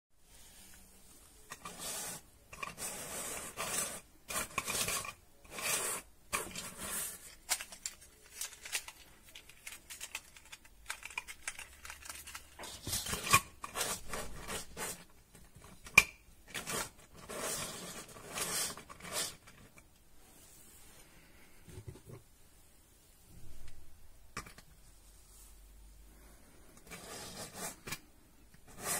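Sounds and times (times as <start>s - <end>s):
plastic toy segments rattling: 7.1s - 13.3s.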